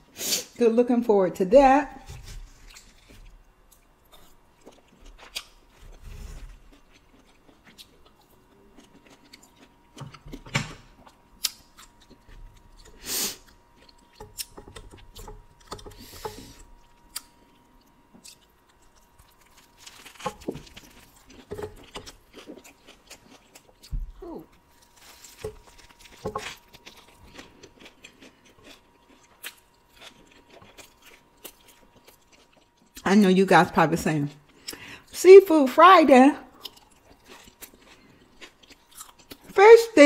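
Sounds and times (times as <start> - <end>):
person chewing food: 2.2 - 33.0, 34.4 - 35.1, 36.5 - 39.6
small crunches: 16.8 - 32.9.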